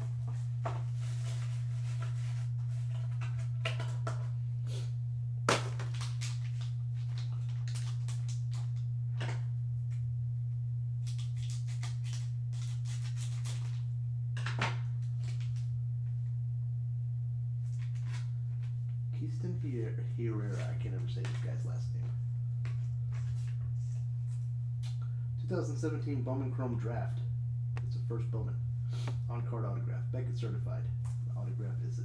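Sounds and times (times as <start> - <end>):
low electrical hum: 0.0 - 32.0
foil pack crinkling: 5.5 - 8.8, 11.0 - 13.8, 17.6 - 18.7.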